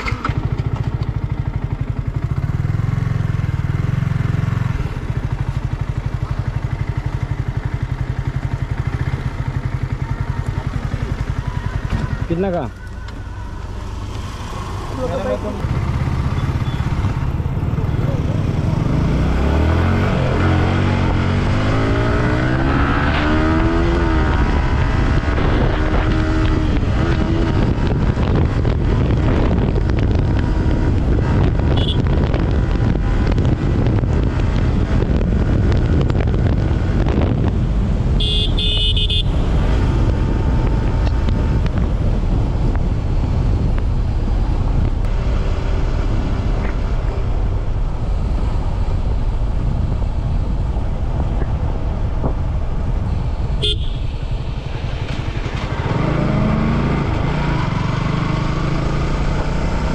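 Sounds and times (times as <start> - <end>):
motorcycle engine revving: 0.0 - 12.8, 13.8 - 59.9
wind rush on microphone: 15.6 - 59.9.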